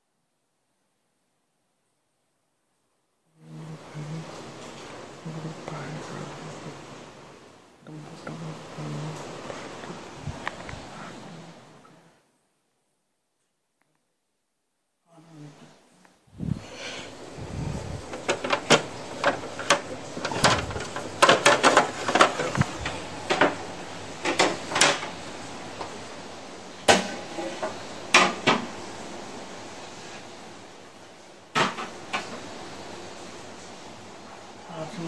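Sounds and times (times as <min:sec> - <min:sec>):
knocks and clatter in cupboard: 0:18.1 - 0:23.6.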